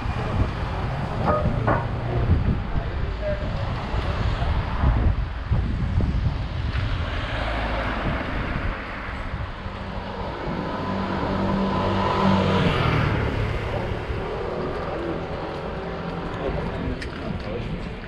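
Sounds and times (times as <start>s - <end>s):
wind on microphone: 0.0s - 18.0s
vehicle engine passing: 6.8s - 17.8s.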